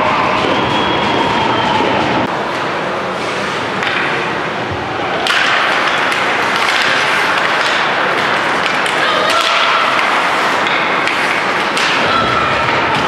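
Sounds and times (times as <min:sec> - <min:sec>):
hockey sticks and puck clacking: 0:00.0 - 0:13.0
skate blades scraping ice: 0:05.4 - 0:13.0.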